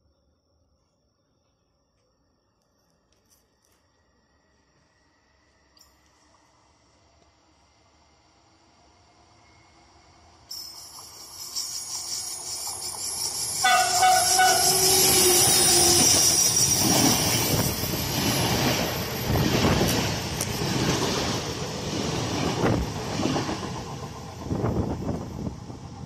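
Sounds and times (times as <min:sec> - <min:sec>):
train wheels on rails: 0:09.7 - 0:26.0
train horn: 0:13.6 - 0:16.6.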